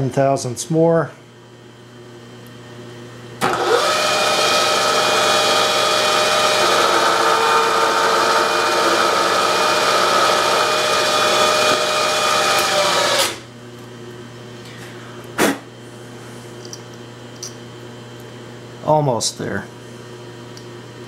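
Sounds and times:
milling machine spindle whine: 0:03.4 - 0:13.4.

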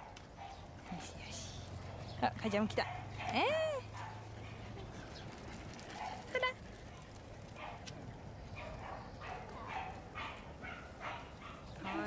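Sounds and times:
small dogs yipping: 0:02.8 - 0:05.0, 0:05.9 - 0:07.9, 0:08.5 - 0:12.0.

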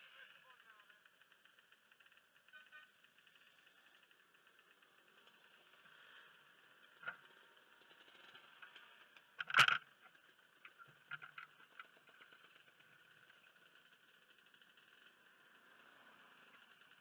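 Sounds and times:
small ticks: 0:07.0 - 0:07.2, 0:08.6 - 0:13.6.

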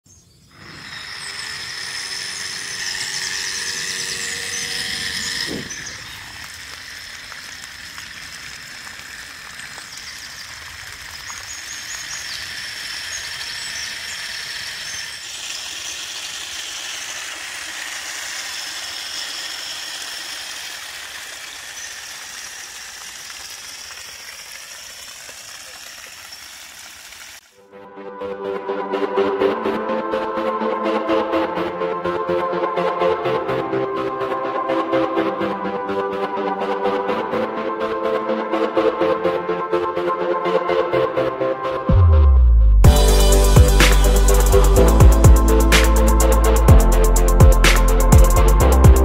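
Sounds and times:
water pump motor whine: 0:00.5 - 0:27.4
water spraying: 0:00.5 - 0:27.6, 0:42.9 - 0:49.0.

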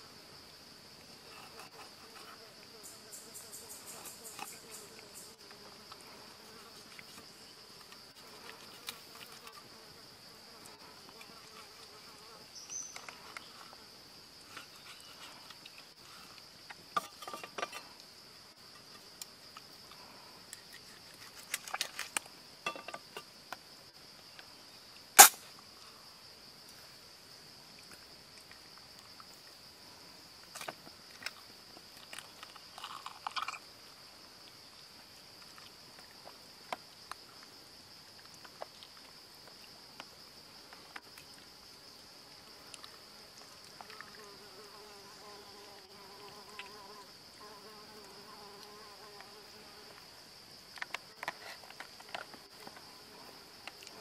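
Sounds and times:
high insect chorus: 0:00.0 - 0:54.0
sharp loud click: 0:25.2 - 0:25.4.

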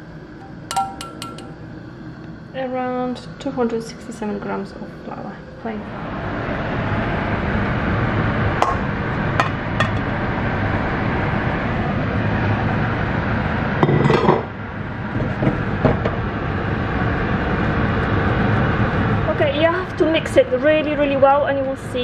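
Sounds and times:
spoon clinking on saucepan: 0:00.4 - 0:01.6.

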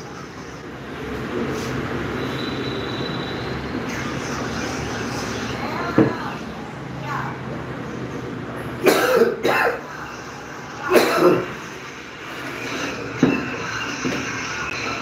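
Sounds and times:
man coughing: 0:08.8 - 0:09.9, 0:10.9 - 0:11.5.

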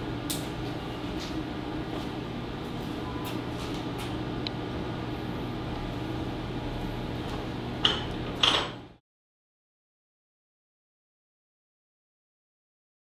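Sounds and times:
kiln room hum: 0:00.0 - 0:09.0
kiln door shutting and latching: 0:07.8 - 0:08.8.

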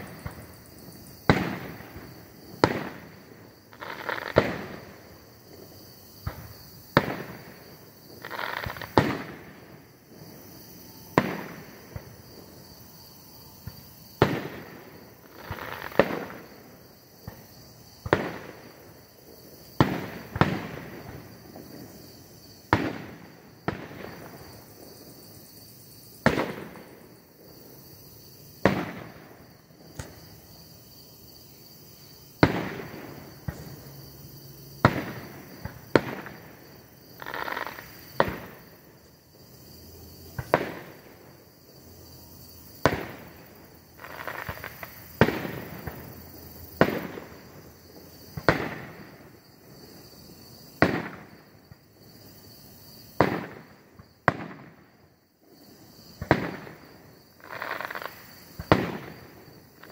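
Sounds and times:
firework booms with echo: 0:00.0 - 0:10.3, 0:11.1 - 0:12.4, 0:13.6 - 0:18.9, 0:19.7 - 0:22.0, 0:22.6 - 0:25.0, 0:26.2 - 0:27.6, 0:28.6 - 0:30.2, 0:32.4 - 0:33.8, 0:34.8 - 0:36.7, 0:38.2 - 0:38.7, 0:40.3 - 0:41.1, 0:42.8 - 0:43.4, 0:44.0 - 0:46.1, 0:46.8 - 0:47.5, 0:48.3 - 0:49.3, 0:50.7 - 0:51.4, 0:53.2 - 0:54.9, 0:56.2 - 0:57.0, 0:57.9 - 0:59.7.

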